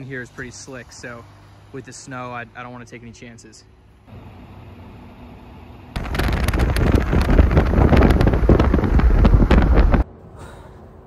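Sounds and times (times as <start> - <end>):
moving vehicle rumble: 0.0 - 11.0
wind buffeting microphone: 6.0 - 10.1.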